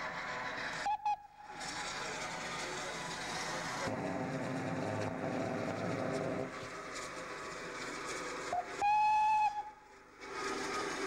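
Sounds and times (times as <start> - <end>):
steam whistle: 8.6 - 9.8.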